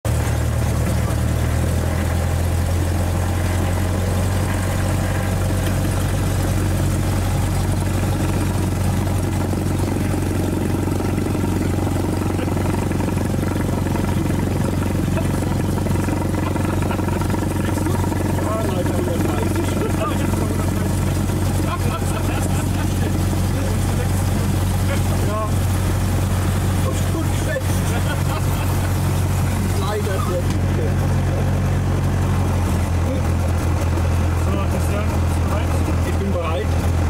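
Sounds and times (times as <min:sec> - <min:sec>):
propeller plane engine droning: 0:00.0 - 0:37.0.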